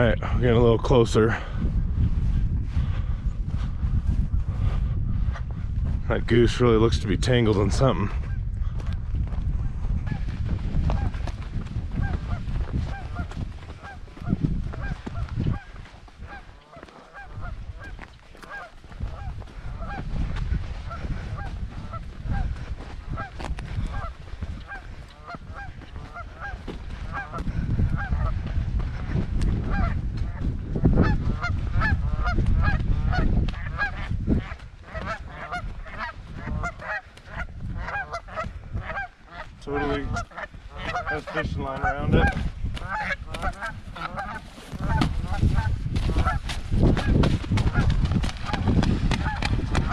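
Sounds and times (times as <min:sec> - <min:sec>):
goose honking: 0:12.0 - 0:20.1, 0:20.9 - 0:28.3, 0:29.7 - 0:30.4, 0:31.0 - 0:46.4, 0:48.5 - 0:49.9.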